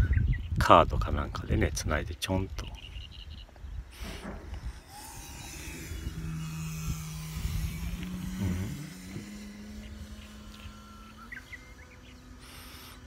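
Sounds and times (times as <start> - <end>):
motor hum: 2.8 - 13.0.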